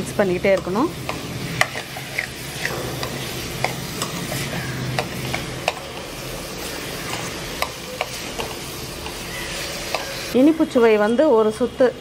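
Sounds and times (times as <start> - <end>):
filling sizzling: 0.0 - 11.9
metal spoon scraping a pan: 0.4 - 10.4.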